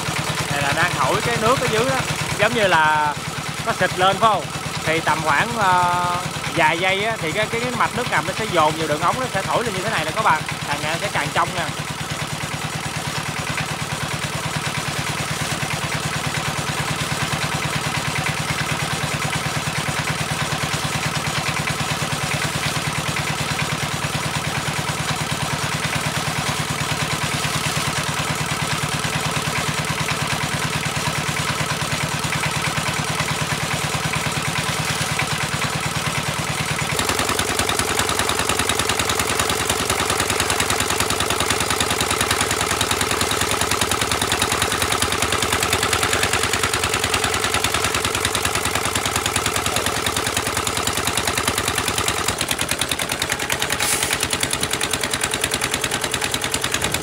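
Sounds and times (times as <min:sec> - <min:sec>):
drilling rig engine running: 0:00.0 - 0:57.0.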